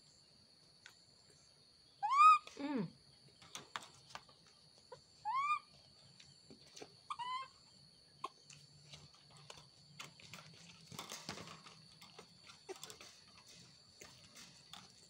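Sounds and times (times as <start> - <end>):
baby monkey calls: 2.0 - 2.6, 4.9 - 5.7, 7.1 - 8.4
taps and knocks on wire cage: 9.0 - 15.0.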